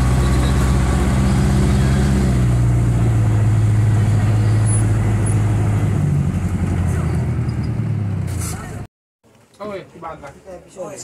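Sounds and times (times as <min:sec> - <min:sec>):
bus engine running: 0:00.0 - 0:08.9.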